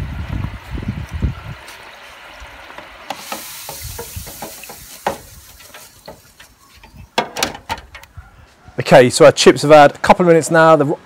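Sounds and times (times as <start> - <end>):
chips deep-frying in oil: 1.9 - 6.6.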